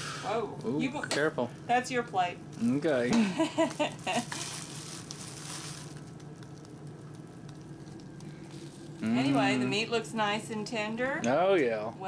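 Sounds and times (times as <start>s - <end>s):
low steady hum: 0.0s - 12.0s
plastic crinkling: 2.6s - 9.0s.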